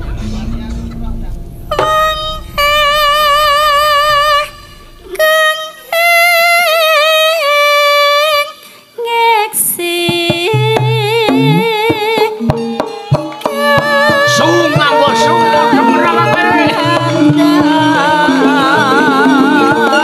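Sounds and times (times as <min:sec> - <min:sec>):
gamelan accompaniment: 0:00.0 - 0:05.3, 0:10.3 - 0:20.0
drum strokes: 0:00.0 - 0:05.7, 0:10.0 - 0:20.0
woman singing ornamented melody: 0:05.2 - 0:12.7.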